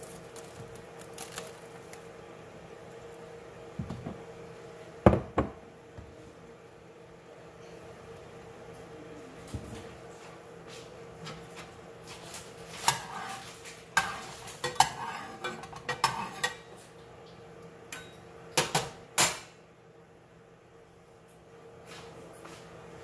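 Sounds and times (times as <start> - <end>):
utensils clinking on dishes: 12.7 - 16.8, 17.9 - 19.5.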